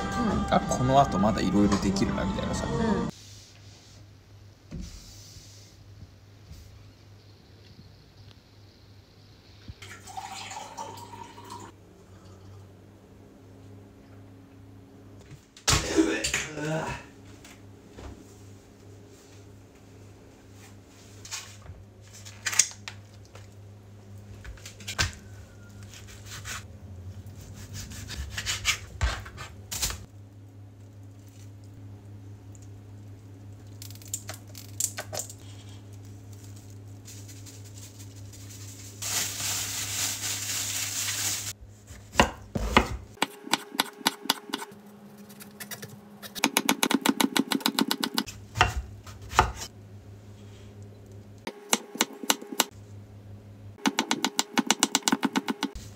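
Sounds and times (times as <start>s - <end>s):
low steady hum: 5.8s - 54.5s
knife chopping on wooden board: 42.1s - 44.6s, 46.4s - 49.7s.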